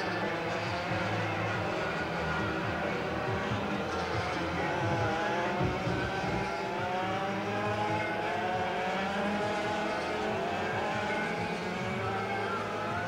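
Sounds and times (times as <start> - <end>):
kart engines revving: 0.0 - 13.0.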